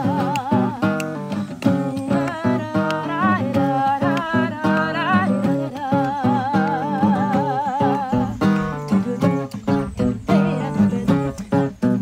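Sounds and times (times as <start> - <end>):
classical guitar: 0.0 - 12.0
woman singing: 0.0 - 12.0.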